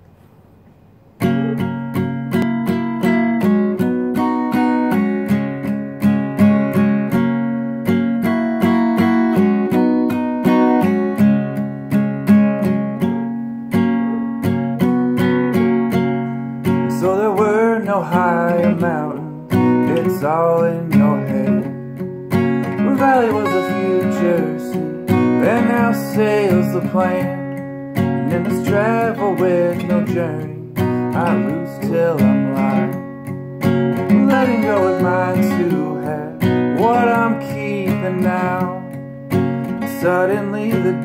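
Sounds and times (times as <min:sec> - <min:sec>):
acoustic guitar strumming: 0:00.0 - 0:41.0
man singing: 0:16.7 - 0:21.9, 0:22.5 - 0:33.2, 0:33.9 - 0:39.0, 0:39.7 - 0:41.0.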